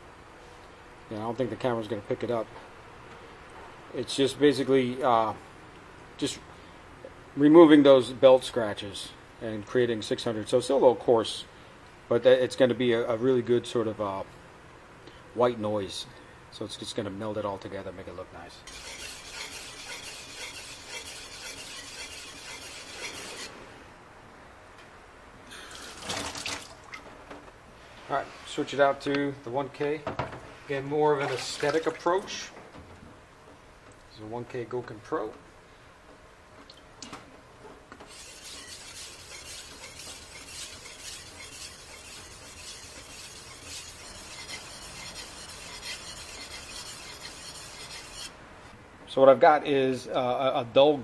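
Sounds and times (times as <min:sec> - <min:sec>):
knife rasping on wet whetstone: 0:18.7 - 0:23.5, 0:38.1 - 0:48.3.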